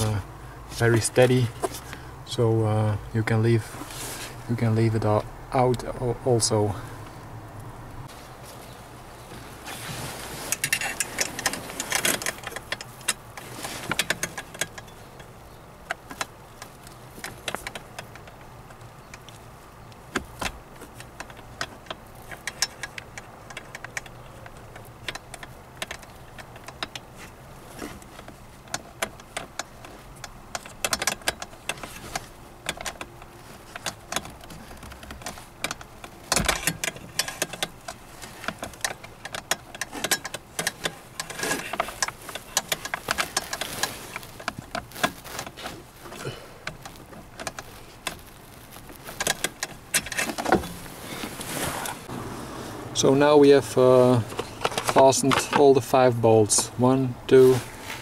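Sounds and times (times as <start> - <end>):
tools clicking on plastic housing: 15.9 - 48.4.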